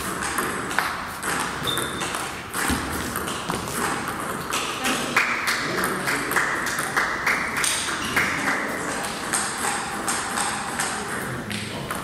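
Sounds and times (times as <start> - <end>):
table tennis ball clicks: 9.0 - 12.0.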